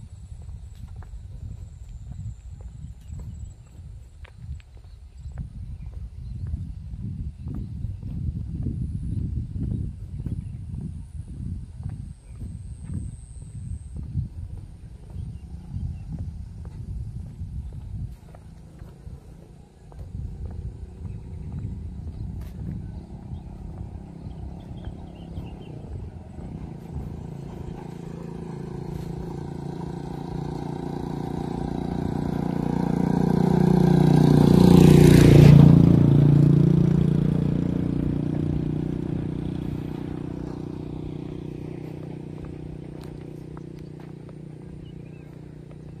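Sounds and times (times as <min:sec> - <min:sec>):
small motor vehicle passing: 0:06.7 - 0:46.0.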